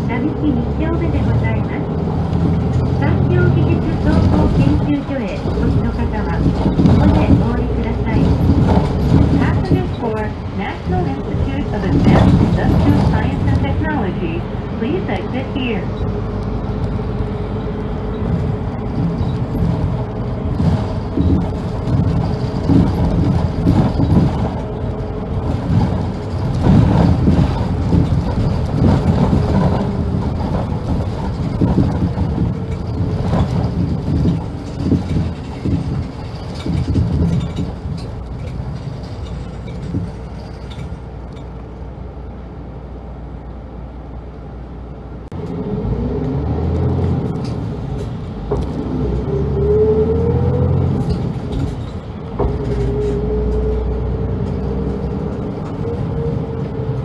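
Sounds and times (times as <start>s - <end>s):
bus engine and road rumble: 0.0s - 57.0s
knocks and rattles: 2.3s - 10.3s, 10.9s - 13.8s, 18.2s - 41.5s, 50.7s - 56.0s.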